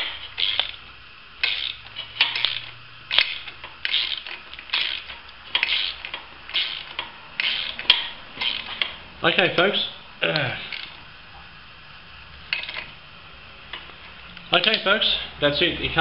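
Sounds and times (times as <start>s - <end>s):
ratchet wrench clicking: 0.0s - 0.8s, 1.4s - 9.0s, 10.7s - 11.0s, 12.5s - 12.9s, 13.7s - 14.9s.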